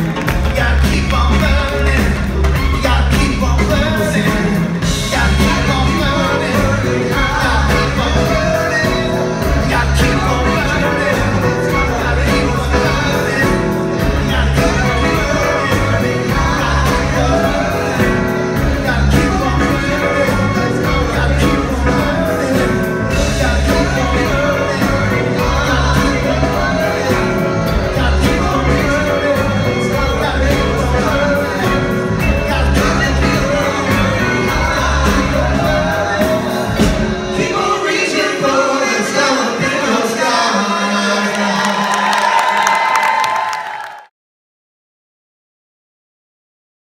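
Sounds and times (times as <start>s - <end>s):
repeating bass line: 0.0s - 37.5s
backing singers singing together: 0.0s - 43.9s
crowd shouting: 40.5s - 44.0s.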